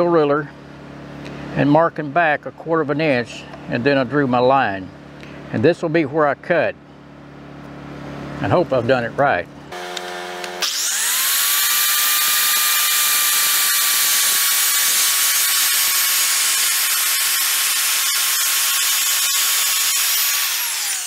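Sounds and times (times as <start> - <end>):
circular saw motor whine: 9.7 - 21.0.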